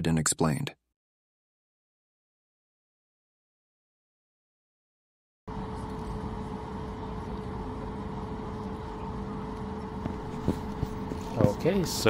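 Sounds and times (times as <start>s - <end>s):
airplane cabin hum and rumble: 5.5s - 12.0s
engine whine: 5.5s - 12.0s.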